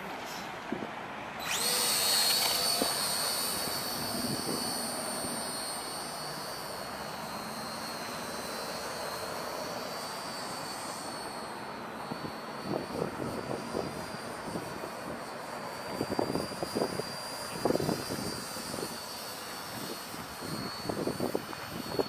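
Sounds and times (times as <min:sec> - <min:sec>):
model plane motors whining: 0:01.4 - 0:22.0
wind buffeting microphone: 0:15.9 - 0:19.0.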